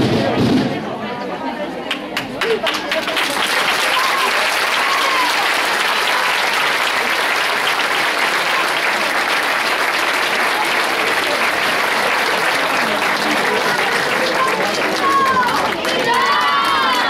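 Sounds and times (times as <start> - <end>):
crowd applauding: 1.9 - 17.0.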